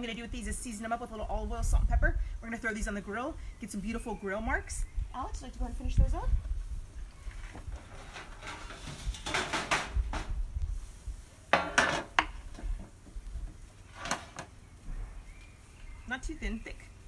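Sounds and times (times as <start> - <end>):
metal tray clattering: 8.0 - 10.0.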